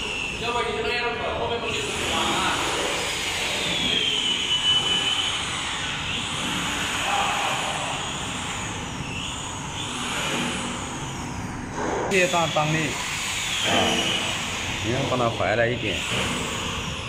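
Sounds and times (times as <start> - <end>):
faint high whine: 0.0 - 17.0
machine mechanical rush: 0.0 - 17.0.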